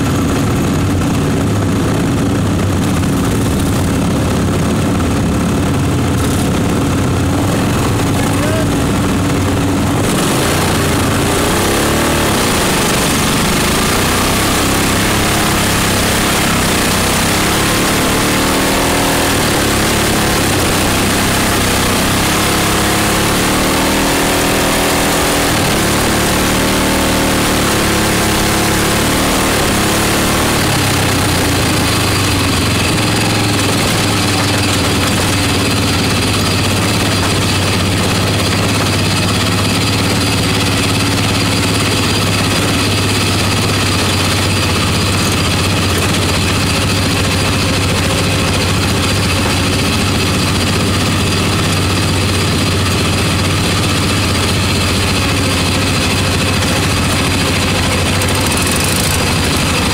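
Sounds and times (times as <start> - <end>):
lawn mower engine running: 0.0 - 59.9
other engines: 0.0 - 59.9.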